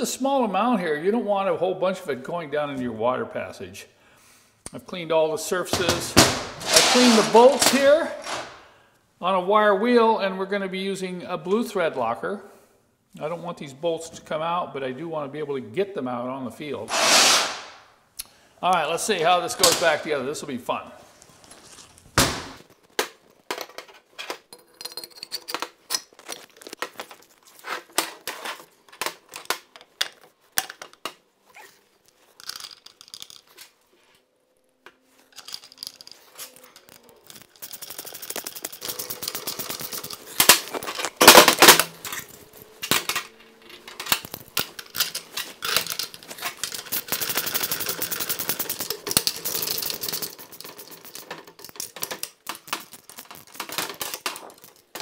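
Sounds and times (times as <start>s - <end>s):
metal parts clinking and knocking: 5.8s - 8.6s, 23.1s - 27.2s, 32.1s - 33.7s, 35.3s - 55.0s
ratchet wrench clicking rapidly: 37.4s - 40.2s, 46.7s - 51.1s.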